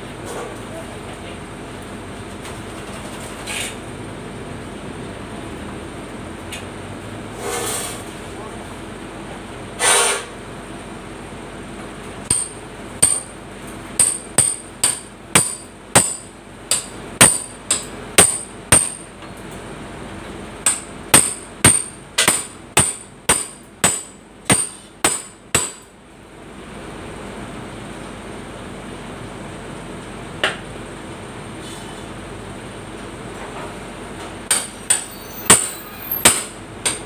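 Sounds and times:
hammer striking sheet metal: 12.3 - 13.3, 14.0 - 19.1, 20.7 - 25.8, 34.5 - 37.0.

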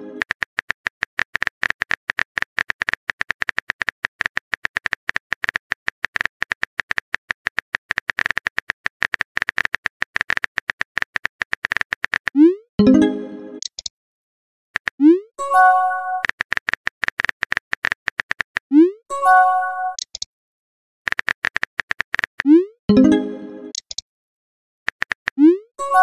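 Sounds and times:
phone keyboard typing clicks: 0.1 - 12.4, 13.6 - 13.9, 16.1 - 18.7, 19.9 - 20.3, 21.1 - 22.5, 23.7 - 24.0, 24.9 - 25.4
message sent tone: 12.4 - 13.2.

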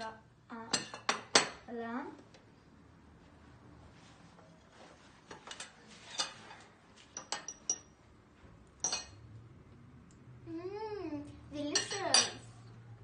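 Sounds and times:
cutlery clinking on a plate: 5.3 - 6.4, 7.1 - 7.9, 8.8 - 9.2.

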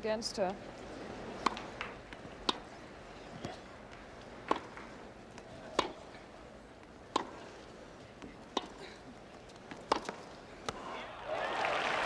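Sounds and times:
tennis ball hit by rackets: 1.4 - 2.7, 4.4 - 4.9, 5.7 - 6.0, 7.1 - 7.5, 8.5 - 8.8, 9.6 - 10.8.

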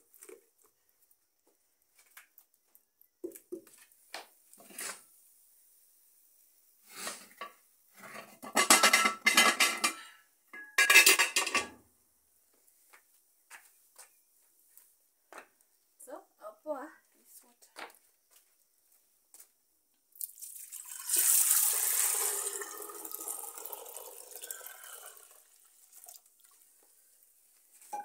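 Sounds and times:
saucepan scraping and clattering on stones: 8.0 - 10.0.

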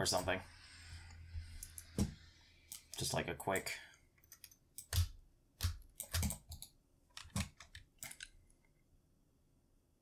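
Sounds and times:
keyboard and mouse clicking: 4.2 - 8.4.

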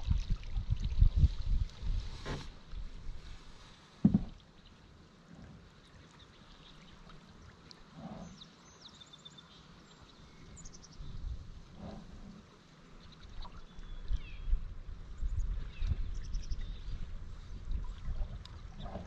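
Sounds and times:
canoe paddle swishing water: 0.0 - 4.7.

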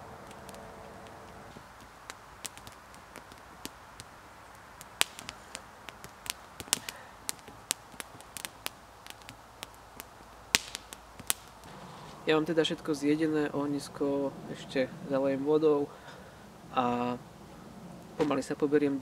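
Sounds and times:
fire snaps and pops: 0.0 - 12.5
campfire crackling: 0.0 - 19.0.

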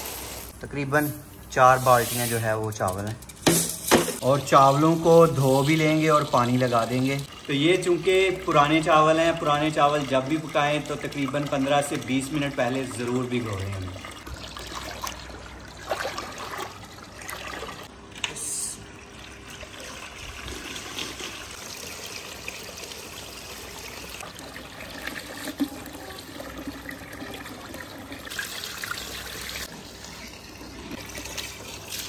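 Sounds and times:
rinse water pouring: 0.0 - 17.9, 18.9 - 32.0
water splashing and trickling: 4.2 - 17.9.

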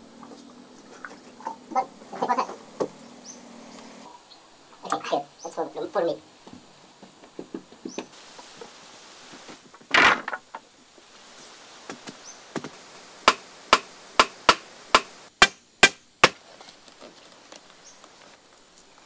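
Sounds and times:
wooden poles knocking into dirt: 6.5 - 8.2, 11.8 - 16.4.

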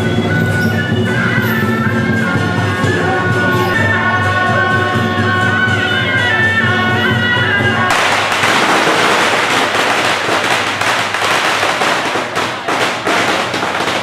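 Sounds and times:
firecrackers popping: 7.9 - 14.0.

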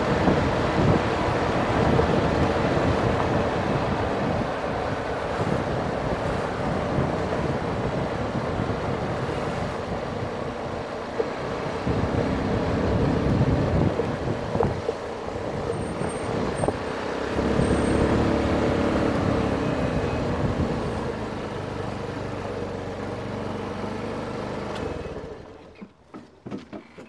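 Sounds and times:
wind rushing over microphone: 0.0 - 22.4
motor scooter engine running: 0.0 - 25.8.

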